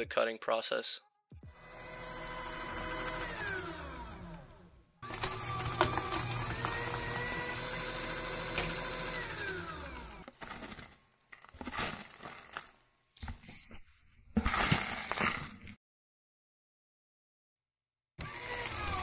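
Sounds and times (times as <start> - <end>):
shredder motor whine: 1.5 - 10.8, 18.2 - 19.0.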